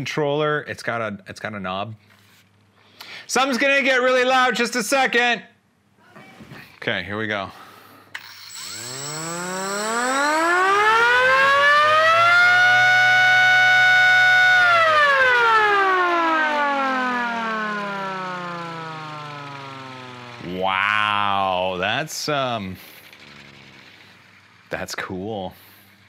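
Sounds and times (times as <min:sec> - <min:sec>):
motor-driven siren wailing: 0:08.2 - 0:24.8.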